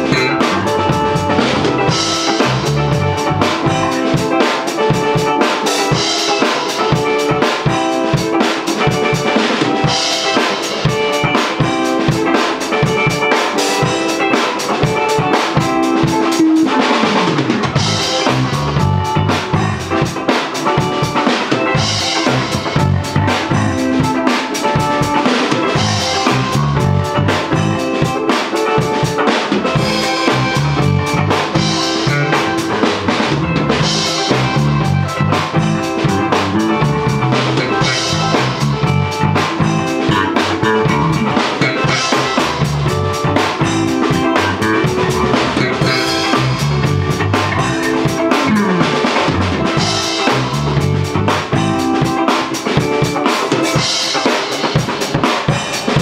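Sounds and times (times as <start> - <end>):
walking bass line: 0.0 - 6.1, 15.0 - 20.2, 21.6 - 28.2, 29.6 - 52.1
drum kit beat: 0.0 - 56.0.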